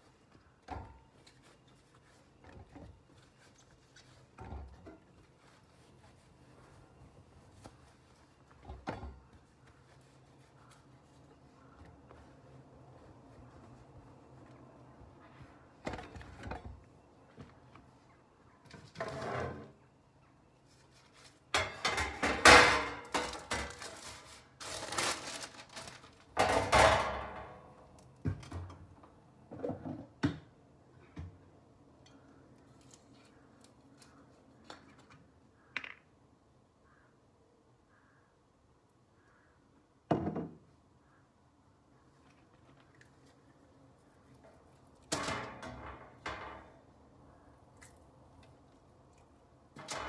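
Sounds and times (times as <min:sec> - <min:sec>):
metal baking tray clattering: 0:21.6 - 0:25.6, 0:45.1 - 0:46.7, 0:49.8 - 0:50.0.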